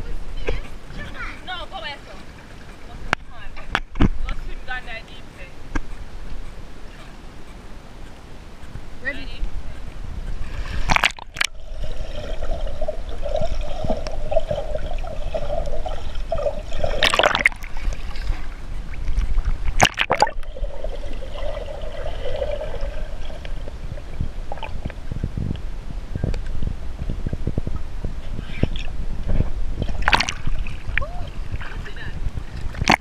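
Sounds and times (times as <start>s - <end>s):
low underwater rumble: 0.0s - 33.0s
water sloshing and gurgling: 0.0s - 33.0s
water splashes: 8.2s - 25.2s, 27.3s - 33.0s.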